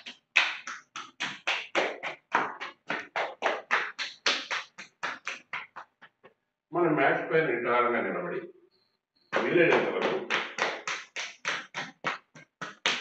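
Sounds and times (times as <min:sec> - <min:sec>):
hands slapping bare leg: 0:00.0 - 0:06.4, 0:09.4 - 0:13.0.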